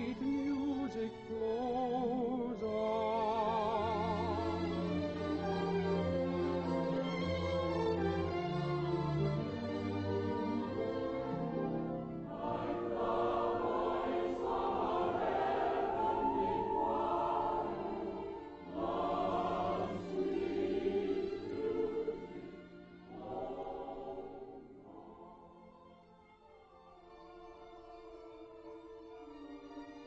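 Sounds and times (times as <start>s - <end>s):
choir singing slow phrases: 12.3s - 26.0s.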